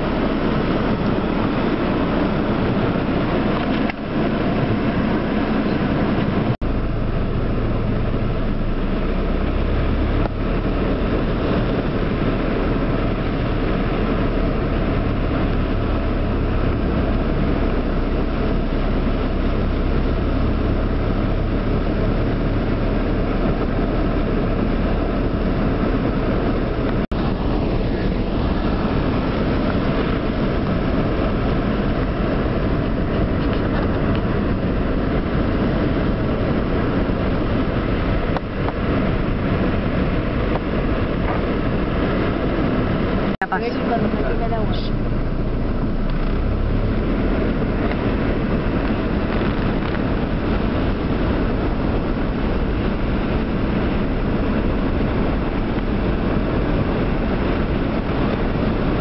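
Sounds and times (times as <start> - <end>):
low engine rumble: 0.0 - 59.0
rain on car roof: 0.0 - 59.0.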